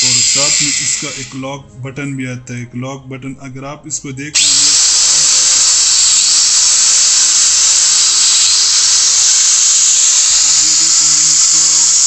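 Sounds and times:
angle grinder whining: 0.0 - 1.4, 4.4 - 12.0.

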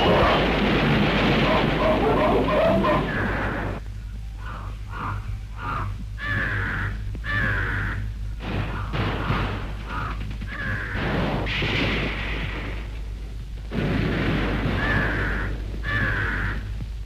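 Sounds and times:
rough rumbling noise: 0.0 - 4.1
steady low hum: 0.0 - 17.0
crows cawing: 1.5 - 3.6, 4.4 - 11.1, 14.7 - 16.8.

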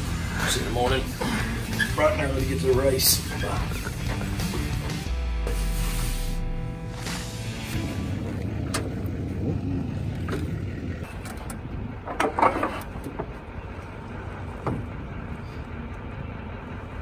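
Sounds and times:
low rumble: 3.6 - 12.2.

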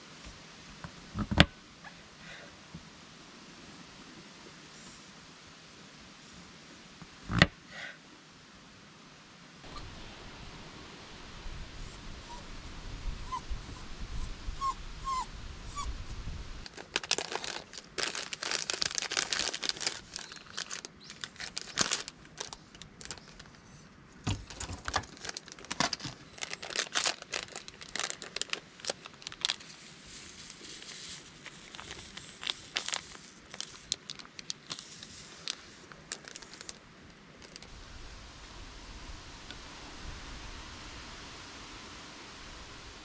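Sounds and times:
foil sachet crinkling and tearing: 16.6 - 23.6, 24.3 - 36.8, 37.4 - 37.7
low rumble: 37.6 - 43.0.

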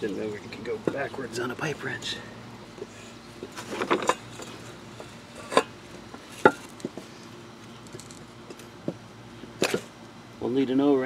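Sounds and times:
wrench set down on concrete: 6.4 - 7.0.

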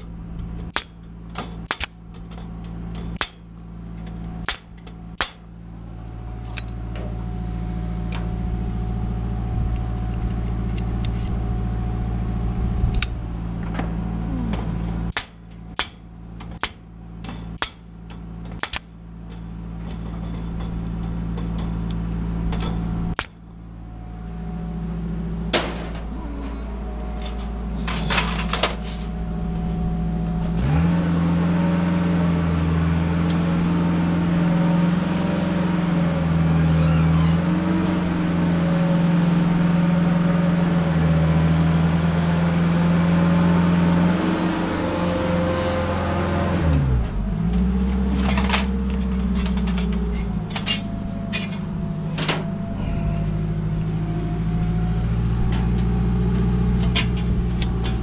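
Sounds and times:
lift engine idling: 0.0 - 58.0
pneumatic stapler snapping: 0.7 - 2.3, 18.6 - 18.9.

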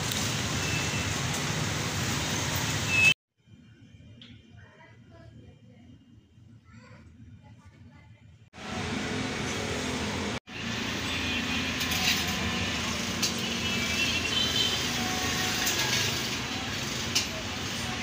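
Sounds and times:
road traffic rumble: 0.0 - 3.2, 8.5 - 18.0.

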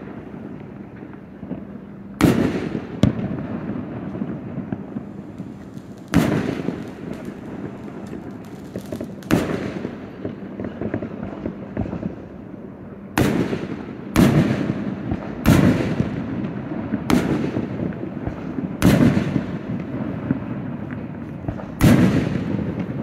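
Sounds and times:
fireworks booms: 0.0 - 12.4, 13.1 - 23.0
fireworks crackle: 0.0 - 12.4.

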